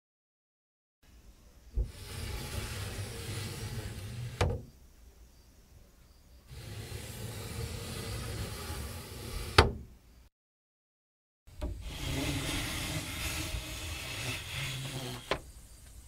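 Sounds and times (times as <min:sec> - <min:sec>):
paper screen sliding in wooden groove: 0:01.8 - 0:04.6, 0:06.5 - 0:09.8, 0:11.6 - 0:15.5
sliding screen knocking shut: 0:01.8 - 0:04.7, 0:06.6 - 0:09.9, 0:11.6 - 0:15.5.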